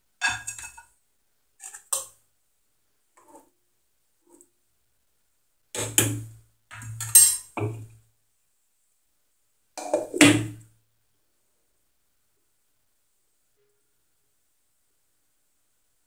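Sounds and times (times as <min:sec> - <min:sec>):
metal spoon clinking against pot: 0:00.2 - 0:00.8, 0:05.8 - 0:07.6.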